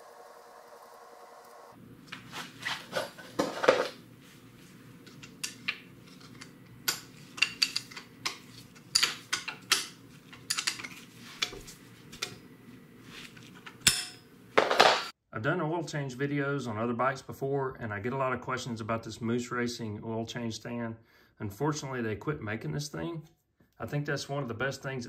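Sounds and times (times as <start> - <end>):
low steady hum: 0.0 - 14.8
wrench and metal parts clinking: 5.2 - 11.0.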